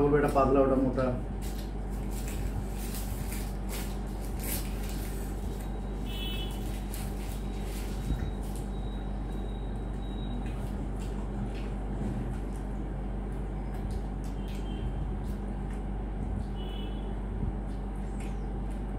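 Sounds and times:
background hum: 0.0s - 18.9s
paper wrapper peeling: 1.4s - 8.7s.

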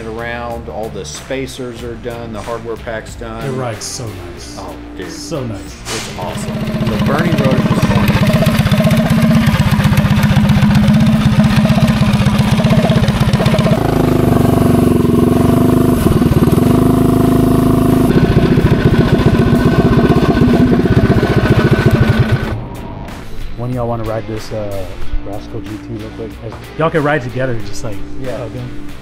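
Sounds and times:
small gas engine running: 6.1s - 23.2s.

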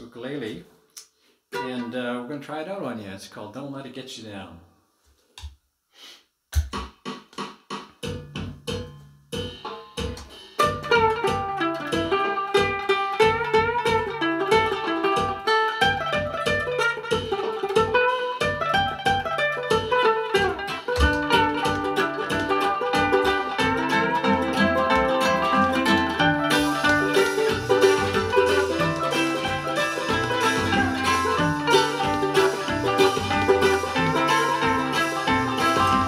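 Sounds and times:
ukulele strumming chords: 1.6s - 2.2s, 9.7s - 36.0s
low beat: 8.0s - 36.0s.

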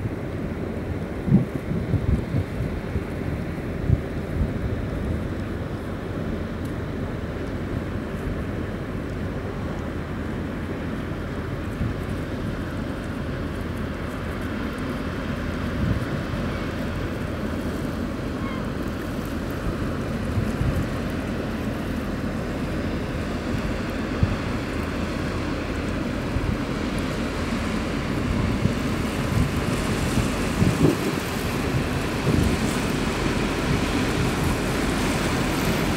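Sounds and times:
wind bumps on microphone: 1.2s - 3.1s, 15.8s - 16.4s, 28.2s - 32.9s
ship engine drone: 2.6s - 35.9s.

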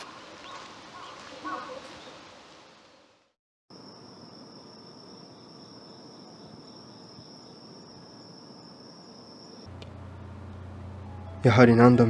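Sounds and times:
crickets trilling: 3.7s - 9.9s.

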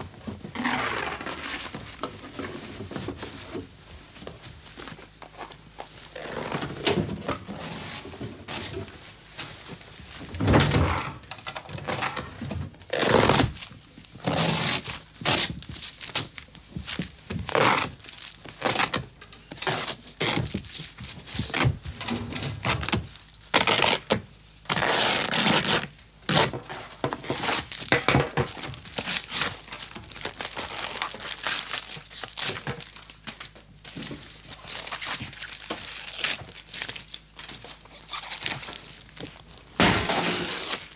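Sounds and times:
fabric ripping: 12.9s - 13.5s, 14.2s - 15.5s, 24.7s - 26.5s, 40.0s - 40.9s
paper tearing and crumpling: 12.9s - 16.2s, 23.6s - 26.6s, 28.8s - 33.1s, 34.5s - 40.9s.

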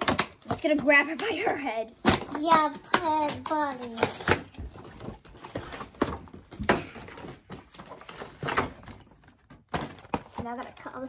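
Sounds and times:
cardboard knocks and cracks: 0.0s - 1.4s, 2.0s - 11.0s
cardboard packaging scraping and rustling: 2.1s - 11.0s.

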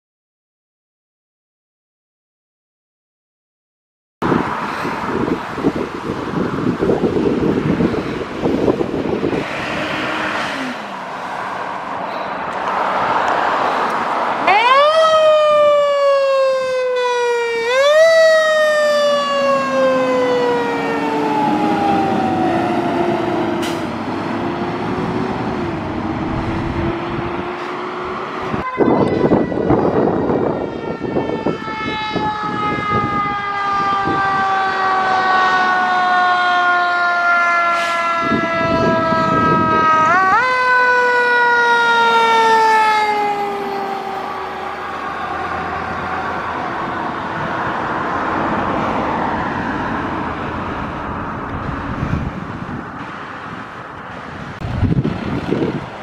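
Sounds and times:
fire truck siren wailing: 4.2s - 55.9s
truck engine and road noise: 4.2s - 56.0s
second siren falling pitch: 14.4s - 47.4s.

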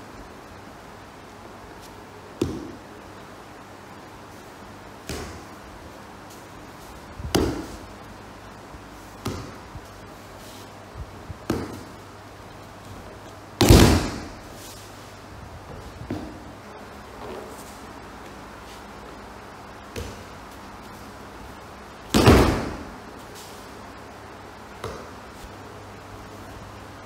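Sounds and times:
body thudding on mats: 13.6s - 14.5s, 22.1s - 23.0s.

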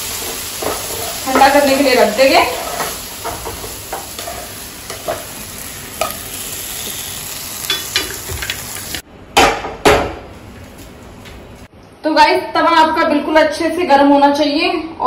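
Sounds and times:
vegetables sizzling in a frying pan: 0.0s - 9.0s.

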